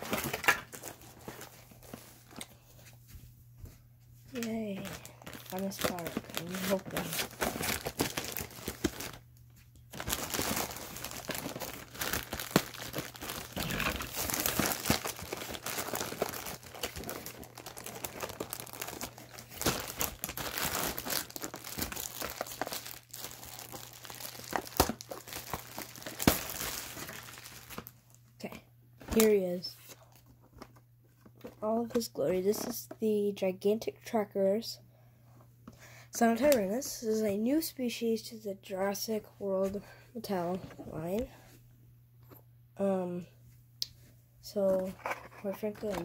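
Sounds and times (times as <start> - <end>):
plastic wrapping crinkling and tearing: 0.0 - 2.5, 4.3 - 28.0, 29.1 - 30.8, 44.7 - 46.0.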